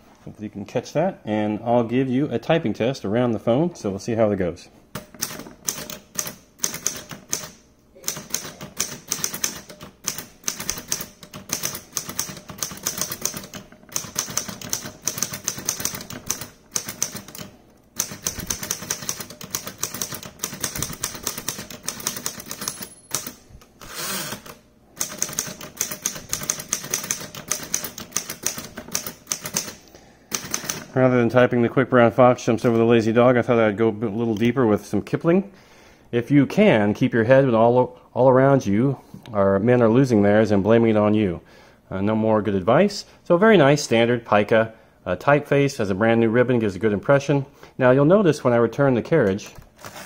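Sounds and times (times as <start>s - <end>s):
manual typewriter keystrokes: 5.0s - 30.9s.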